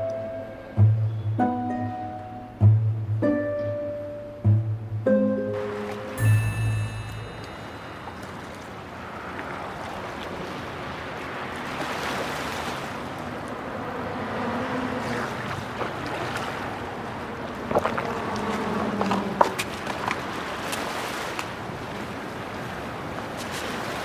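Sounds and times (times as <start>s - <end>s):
wind: 0.0s - 24.0s
water lapping on rocks: 14.3s - 24.0s.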